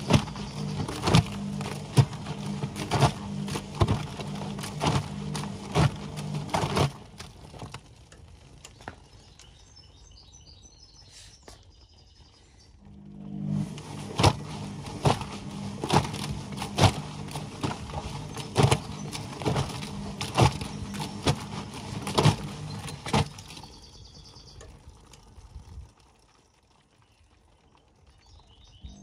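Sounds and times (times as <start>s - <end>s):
wet laundry slapping in drum: 0.0s - 9.2s, 13.5s - 24.0s
washing machine motor hum: 0.0s - 9.9s, 12.7s - 26.8s, 28.8s - 29.0s.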